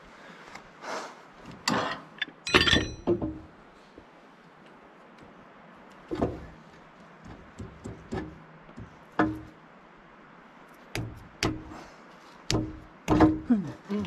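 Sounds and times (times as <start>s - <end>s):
metal knocks and clanks: 1.7s - 3.5s, 7.2s - 9.6s, 12.5s - 14.0s.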